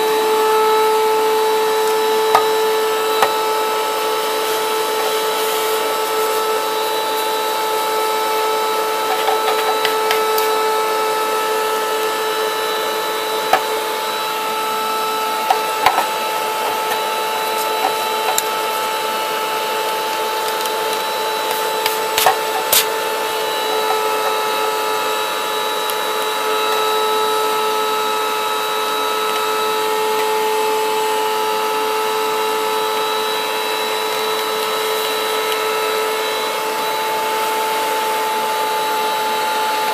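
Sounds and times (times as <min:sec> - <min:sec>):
vacuum cleaner whining: 0:00.0 - 0:39.9
brush scrubbing: 0:03.2 - 0:10.6, 0:15.4 - 0:19.1.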